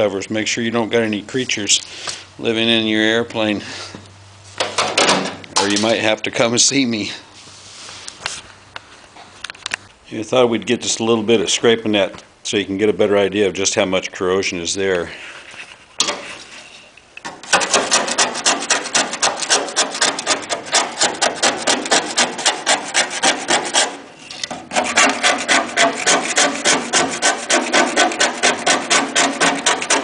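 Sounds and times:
hand scraper scraping metal: 16.0s - 30.0s.

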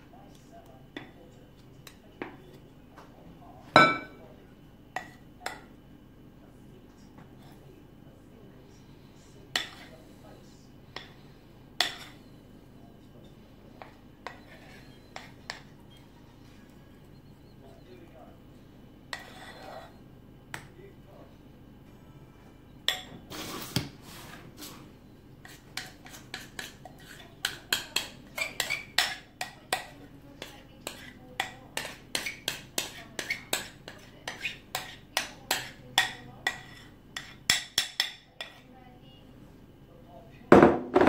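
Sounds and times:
metal spoon clinking ceramic bowl: 3.8s - 4.2s.

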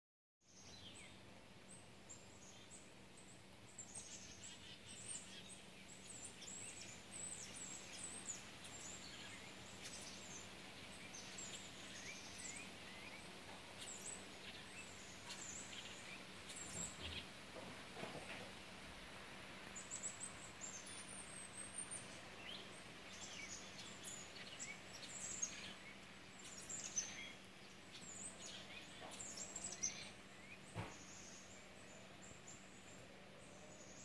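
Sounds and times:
chickadees calling: 2.2s - 17.5s.

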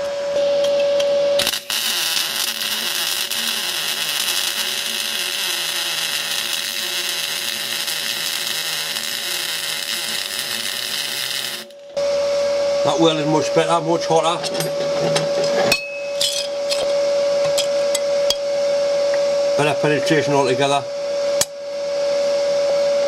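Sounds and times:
welding arc crackling hiss: 1.4s - 11.8s.

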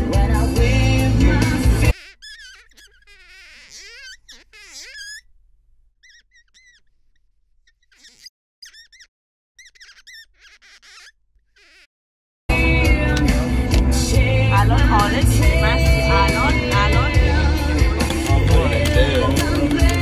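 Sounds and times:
high-pitched whines and squeaks: 1.9s - 5.4s, 6.0s - 11.9s.

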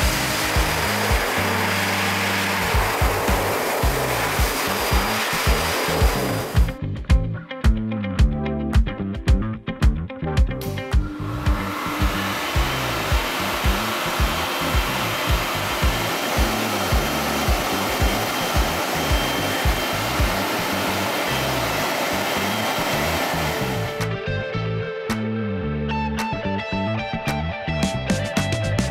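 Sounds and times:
blower dryer rushing air: 0.0s - 6.8s, 10.6s - 24.1s
background music with steady beat: 0.0s - 28.9s.

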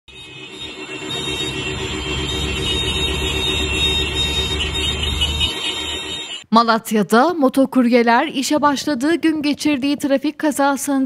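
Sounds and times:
motorcycle horns blaring: 0.1s - 6.4s
motorcycle convoy rumble: 0.5s - 5.6s.

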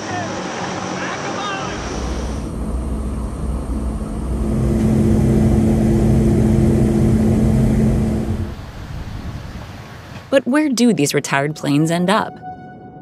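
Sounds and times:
aircraft engines droning: 0.0s - 10.3s.

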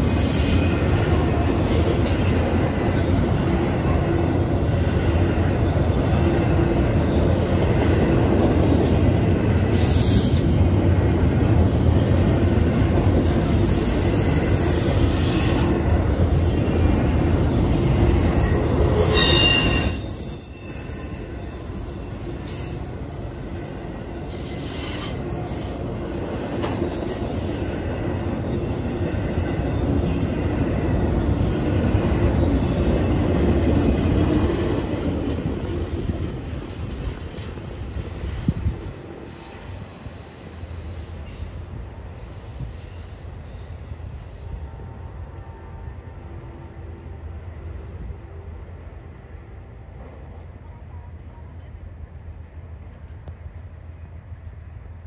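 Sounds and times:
freight train rumbling: 0.0s - 55.0s
metallic wheel squeal: 17.5s - 25.9s.

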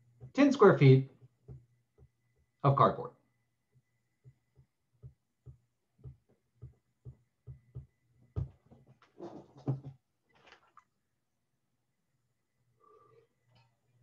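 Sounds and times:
rustling and knocking on desk: 1.1s - 2.6s, 4.2s - 10.7s
stylus knocking on tablet: 1.2s - 2.5s, 4.2s - 8.6s.

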